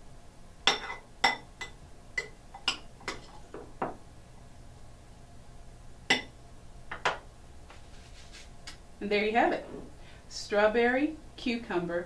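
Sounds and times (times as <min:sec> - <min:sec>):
spoon clinking glass bowl: 0:00.7 - 0:03.2.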